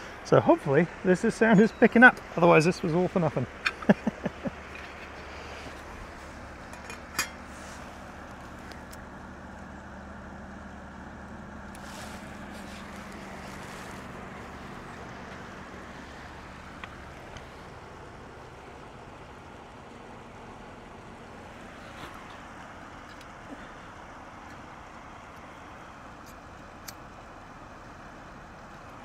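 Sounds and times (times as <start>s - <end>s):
flowing river water: 11.8s - 29.0s.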